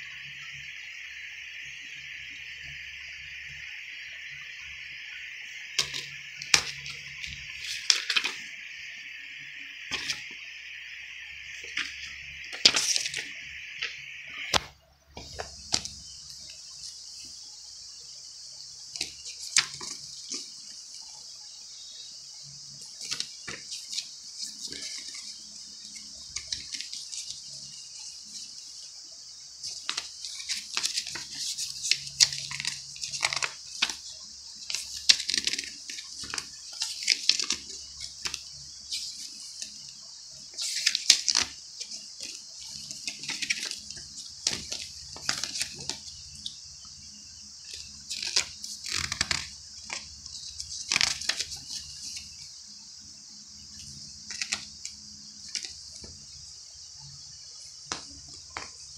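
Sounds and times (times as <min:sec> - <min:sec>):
steady high hiss: 0:00.0 - 0:58.9
paper rustling and flapping: 0:05.8 - 0:08.5, 0:09.9 - 0:10.3, 0:11.6 - 0:16.0, 0:23.0 - 0:27.4, 0:29.6 - 0:39.8, 0:40.5 - 0:46.1, 0:47.7 - 0:52.3, 0:54.2 - 0:56.1.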